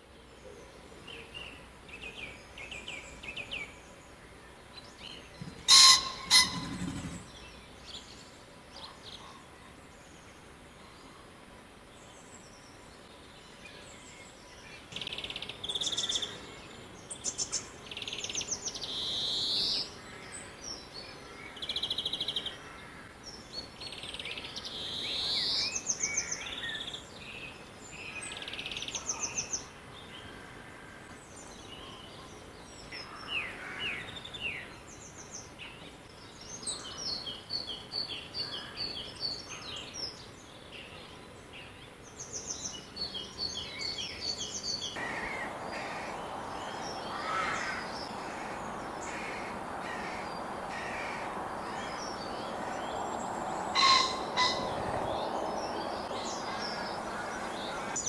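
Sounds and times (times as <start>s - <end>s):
background hiss: 0.0s - 58.0s
songbirds singing and chirping: 0.0s - 58.0s
pheasant crowing: 5.4s - 7.3s, 45.0s - 58.0s.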